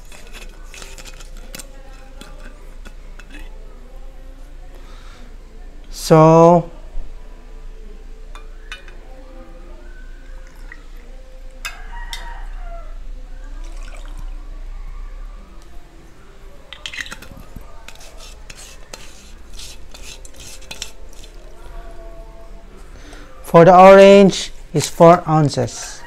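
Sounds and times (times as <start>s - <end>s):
liquid pouring over ice: 13.6s - 14.3s.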